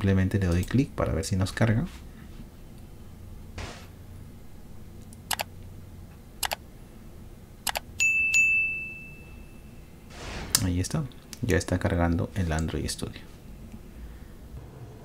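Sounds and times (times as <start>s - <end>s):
sharp clicks: 5.0s - 5.5s, 6.4s - 6.6s, 7.6s - 7.9s
bell chime: 8.0s - 9.9s.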